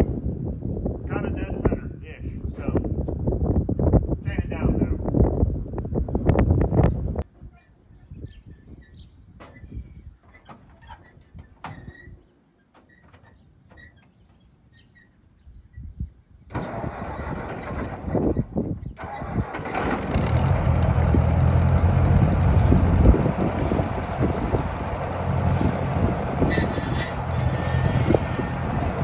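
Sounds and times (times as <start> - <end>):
engine cranking and running: 16.5 - 29.0.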